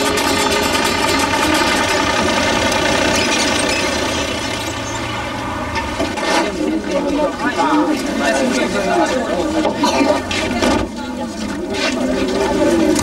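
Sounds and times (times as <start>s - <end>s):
motor vehicle running: 0.0s - 8.5s.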